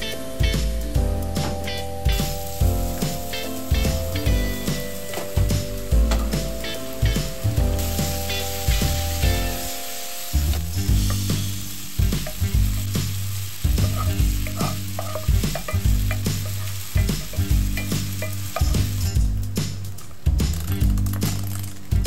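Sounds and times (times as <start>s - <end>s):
chicken sizzling in frying pan: 0.0s - 21.0s
soft background music: 0.0s - 22.0s
wooden spatula scraping pan: 13.8s - 18.8s.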